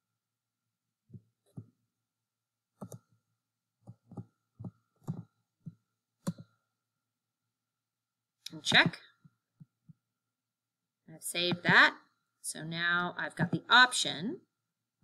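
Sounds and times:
computer keyboard keystrokes: 2.8 - 3.0.

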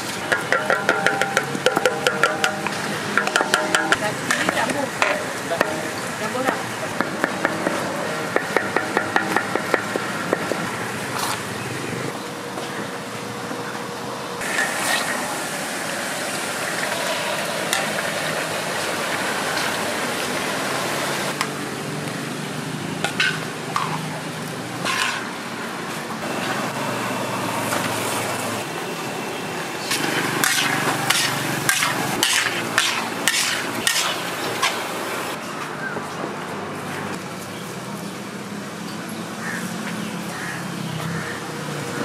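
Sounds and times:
food sizzling in hot oil: 14.4 - 21.3
metal utensils clinking and scraping: 24.8 - 25.3, 29.9 - 34.9.

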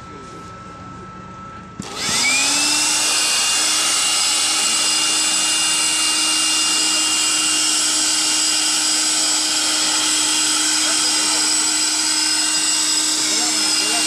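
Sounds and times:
electric air blower whining: 0.0 - 14.0.

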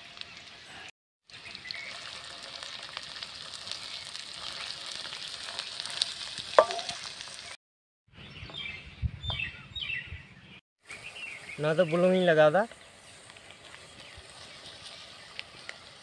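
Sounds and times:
onions sizzling in hot oil: 0.0 - 7.6
ladle knocking against pan: 6.6 - 7.0.

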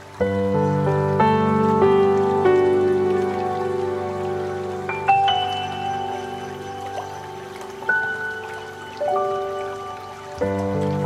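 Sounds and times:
gentle instrumental music: 0.0 - 11.0
stream flowing between rocks: 0.0 - 11.0.

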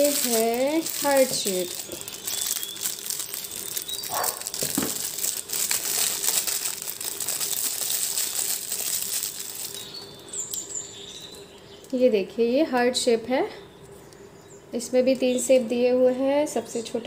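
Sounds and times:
plastic packaging crinkling: 0.0 - 10.6.

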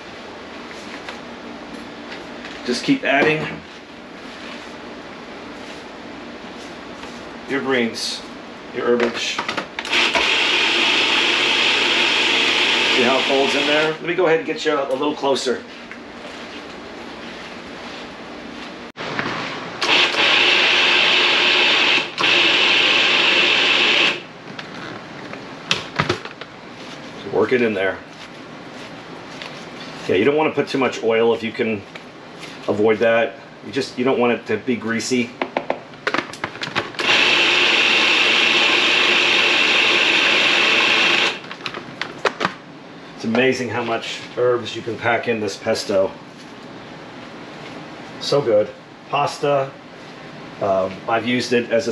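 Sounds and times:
food processor running: 9.8 - 14.0, 19.8 - 24.3, 37.0 - 41.4.

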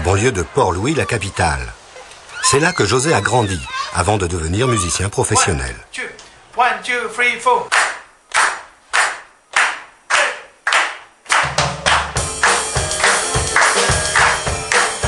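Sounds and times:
hand claps keeping a beat: 7.7 - 15.0
drums: 11.4 - 15.0.

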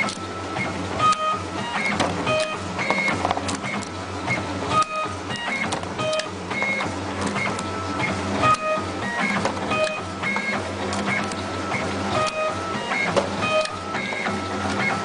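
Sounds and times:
motor whine bursts: 0.0 - 15.0
steady motor hum: 0.0 - 15.0.

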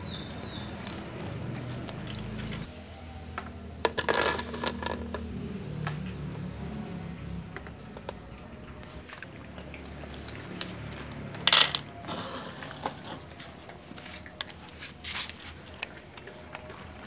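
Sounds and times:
cats crunching dry kibble: 0.1 - 2.7, 9.0 - 17.0.

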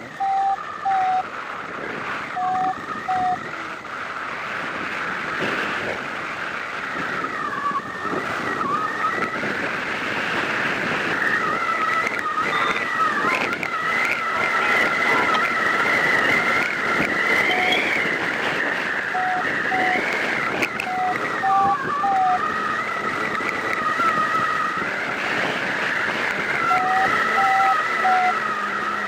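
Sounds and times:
wind rushing over microphone: 0.0 - 29.0
short low beeps: 0.1 - 1.2, 2.4 - 3.4, 12.3 - 13.2
high whistle-like tone: 0.1 - 1.3, 2.4 - 3.5, 7.1 - 9.5, 11.1 - 24.8, 26.6 - 29.0.

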